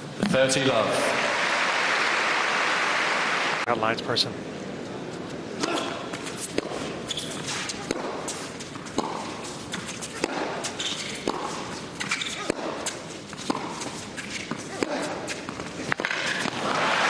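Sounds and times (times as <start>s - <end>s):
shoes squeaking: 4.9s - 16.9s
racket hitting tennis ball: 5.6s - 17.0s.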